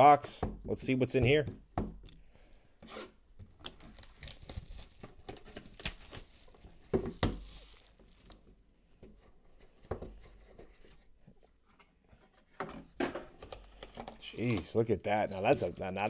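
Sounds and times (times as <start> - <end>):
cardboard tearing and rustling: 3.7 - 8.4.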